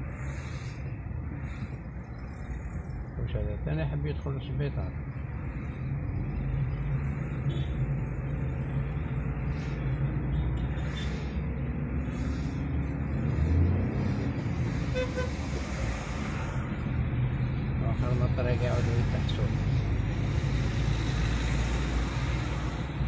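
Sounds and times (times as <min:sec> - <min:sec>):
car engine and road noise: 0:00.0 - 0:23.0
car horn toots: 0:14.9 - 0:15.3.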